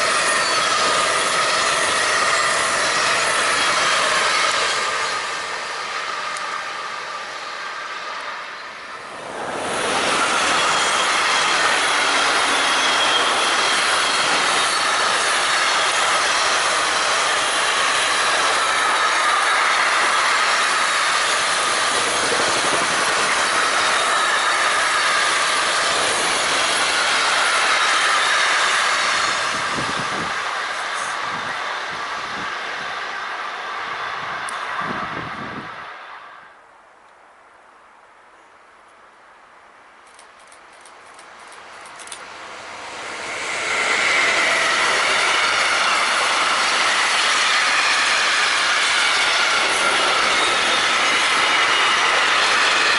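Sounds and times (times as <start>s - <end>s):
high squeal tones: 0.0s - 31.7s, 42.6s - 52.9s
train going away: 0.0s - 36.9s, 40.1s - 52.9s
wheels on rail: 0.0s - 52.9s.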